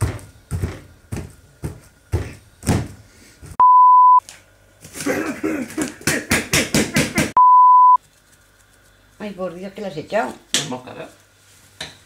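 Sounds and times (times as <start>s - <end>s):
fist pounding bananas in bowl: 0.0s - 3.0s, 5.7s - 7.4s
steady single-pitch beep: 3.6s - 4.2s, 7.4s - 8.0s.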